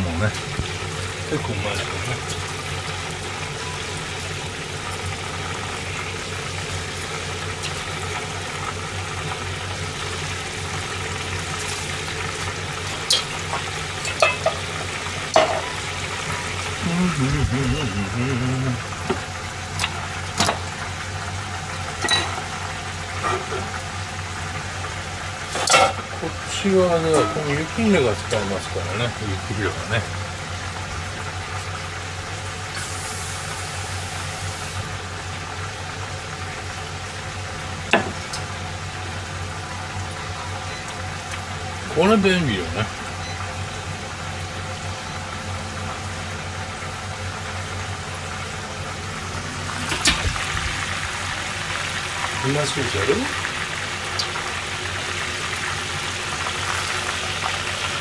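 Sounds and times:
cooling fan hiss: 0.0s - 58.0s
induction hob humming: 0.0s - 58.0s
cookware clattering: 14.0s - 14.6s, 22.0s - 22.4s
kitchen hiss: 32.5s - 35.0s.

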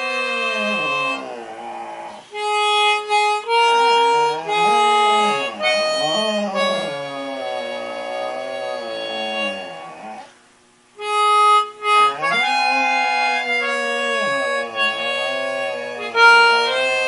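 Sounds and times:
dog howling: 0.0s - 2.2s, 4.0s - 10.3s, 12.1s - 17.0s
instrument playing held notes: 0.0s - 10.3s, 11.0s - 17.0s.

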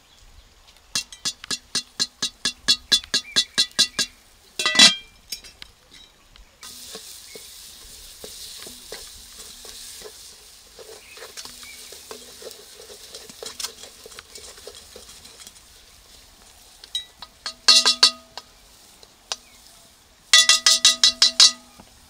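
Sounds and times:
pot lid clanking: 1.0s - 5.5s, 17.0s - 18.4s, 20.4s - 21.7s
steamy hiss: 6.6s - 14.1s
wooden spoon scraping pot: 6.6s - 15.9s.

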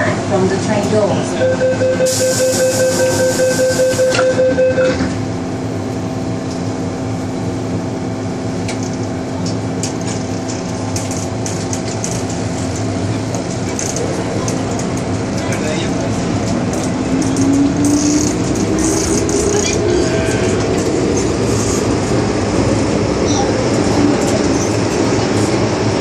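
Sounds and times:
train equipment humming: 0.0s - 26.0s
rapid warning beeps: 1.4s - 4.9s.

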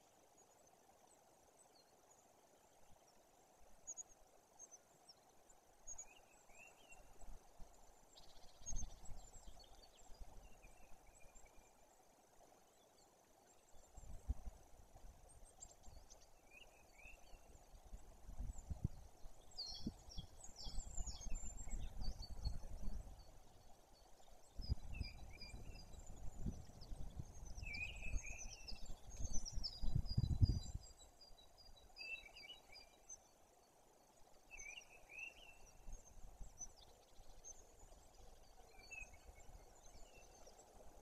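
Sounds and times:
songbirds chirping: 0.0s - 41.0s
wind rumble on microphone: 13.9s - 16.1s, 17.5s - 23.5s, 24.4s - 31.0s.

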